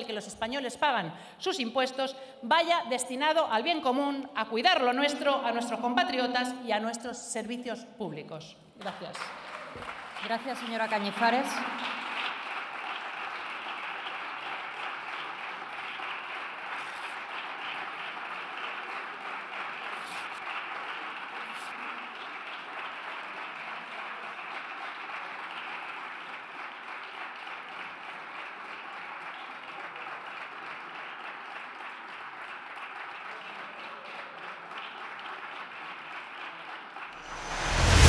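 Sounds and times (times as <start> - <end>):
people applauding: 8.8 - 37.2.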